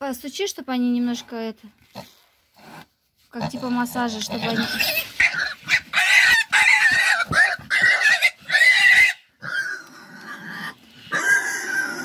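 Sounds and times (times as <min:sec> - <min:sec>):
pig squealing: 0:04.4 - 0:12.0.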